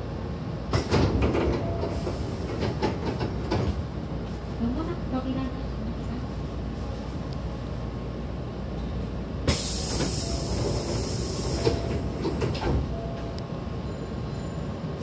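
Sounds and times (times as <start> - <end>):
air hissing from train doors: 0.7 - 4.5, 9.4 - 12.9.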